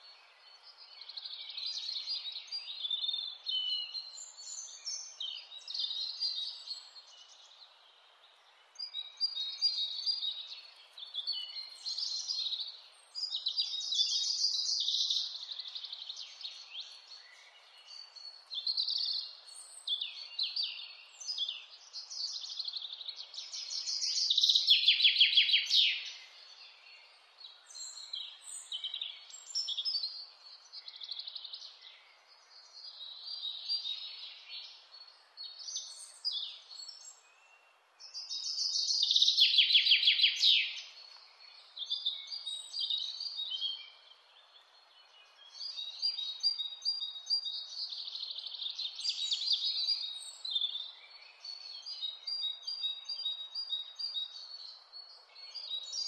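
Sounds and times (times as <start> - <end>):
songbirds singing: 0.0 - 56.0
faint steady hiss: 25.6 - 56.0.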